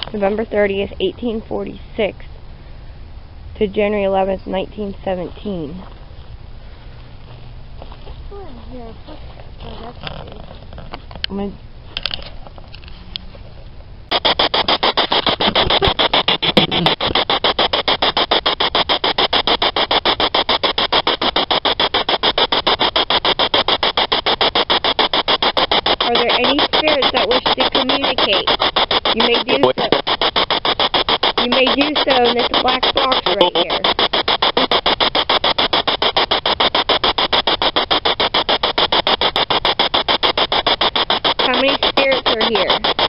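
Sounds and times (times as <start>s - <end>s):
radio static hiss bursts: 8.3s - 10.3s, 14.1s - 43.0s.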